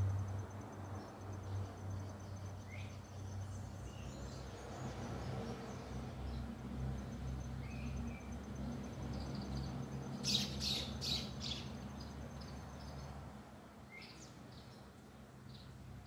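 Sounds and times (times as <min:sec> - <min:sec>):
songbird calling: 0:10.2 - 0:11.8.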